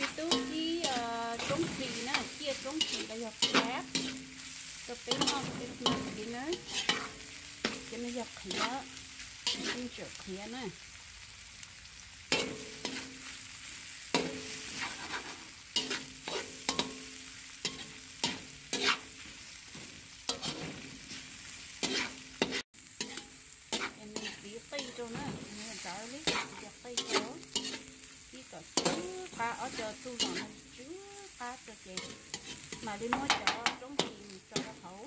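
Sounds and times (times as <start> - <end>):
utensil scraping against pan: 0.0 - 10.0, 14.2 - 17.0, 17.6 - 21.2, 21.8 - 28.0, 28.8 - 30.8, 32.0 - 34.8
food sizzling in a pan: 0.0 - 35.0.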